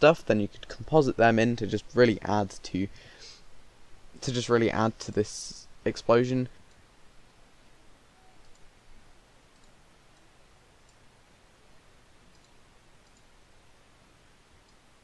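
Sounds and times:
background hiss: 0.0 - 15.0
computer mouse clicks: 8.3 - 8.7, 9.5 - 11.0, 12.3 - 13.3.

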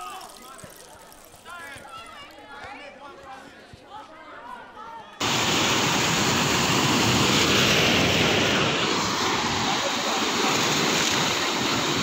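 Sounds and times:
waterfall roaring: 5.2 - 12.0.

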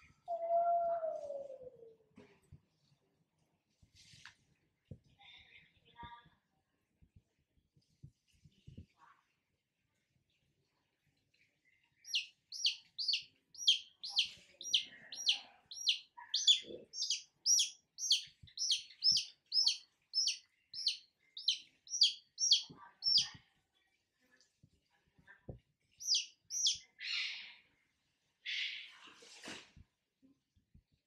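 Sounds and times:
chick distress peeps: 12.1 - 23.2.

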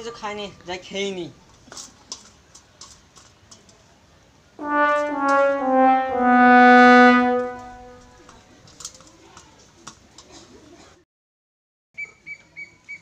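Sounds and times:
sad trombone falling notes: 4.6 - 8.3.

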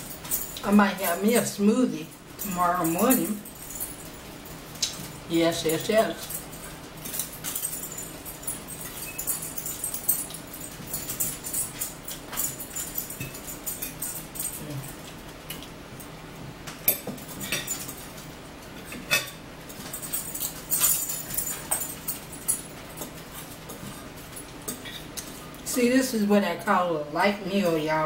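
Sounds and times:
sharp clinks: 2.4 - 15.0, 18.9 - 23.5.

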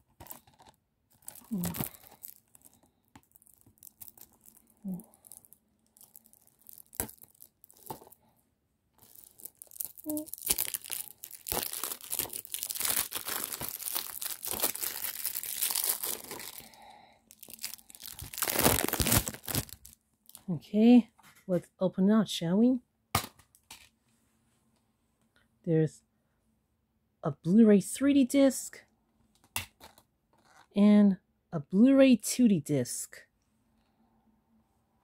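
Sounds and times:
plastic shrink wrap crinkling and tearing: 0.0 - 8.2, 9.0 - 20.5.

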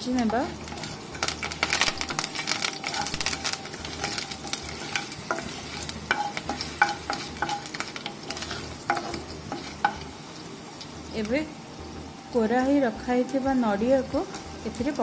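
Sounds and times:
spices sizzling in hot oil: 0.0 - 15.0
wooden spatula scraping pan: 0.2 - 10.1.

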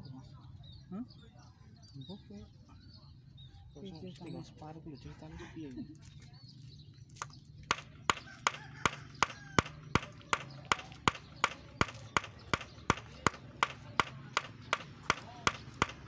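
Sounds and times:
hand hammer striking: 7.7 - 16.0.

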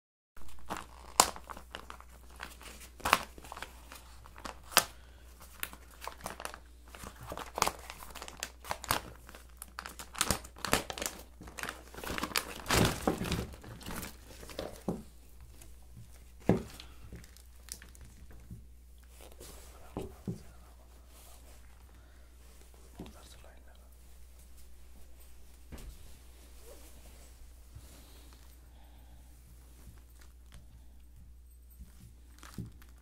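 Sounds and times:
plastic tearing rustle: 0.4 - 18.4, 32.2 - 33.0
plastic bag crinkling: 0.4 - 19.8, 32.1 - 33.0.

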